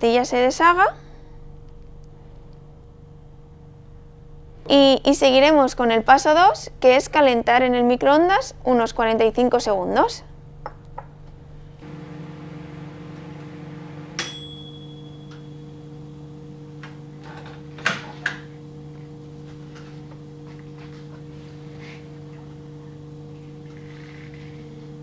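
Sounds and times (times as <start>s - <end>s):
microwave hum: 10.4s - 25.0s
microwave bell ding: 14.0s - 16.1s.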